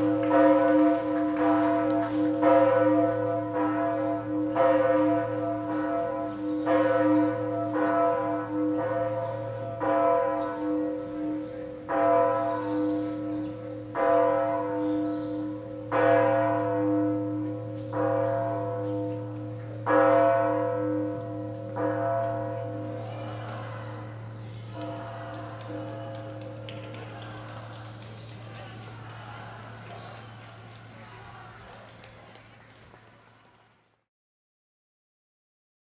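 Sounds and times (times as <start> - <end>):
church bell ringing: 0.0 - 28.1.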